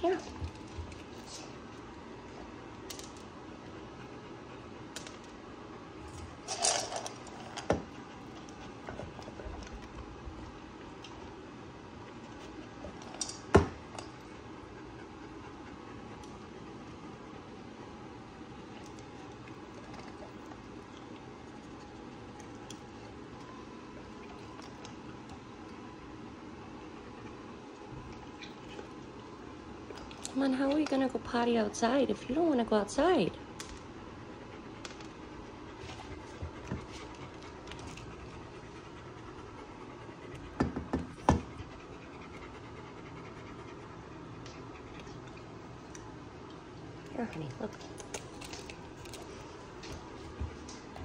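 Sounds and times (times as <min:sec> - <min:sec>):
dog panting: 0:14.2 - 0:17.1, 0:34.3 - 0:45.4.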